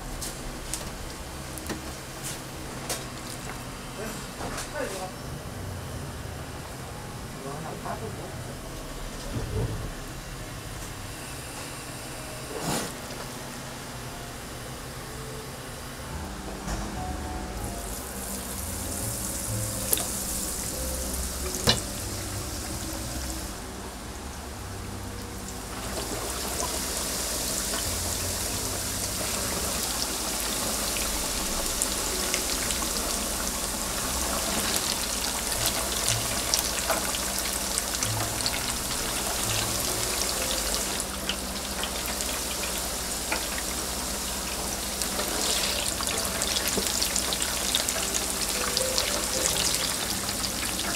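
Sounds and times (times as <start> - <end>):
food deep-frying in oil: 17.8 - 24.2, 25.3 - 50.9.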